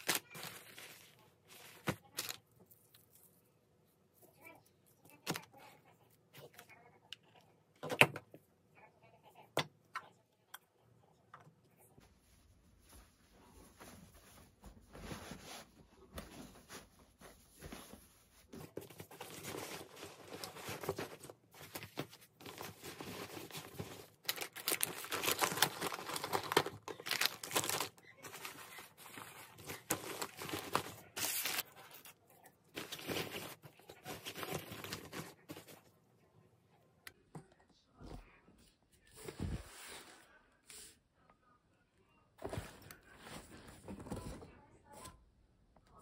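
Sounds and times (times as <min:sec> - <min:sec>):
plastic packaging crinkling: 0:00.0 - 0:02.4, 0:21.8 - 0:31.7
fabric rustling: 0:12.0 - 0:24.0.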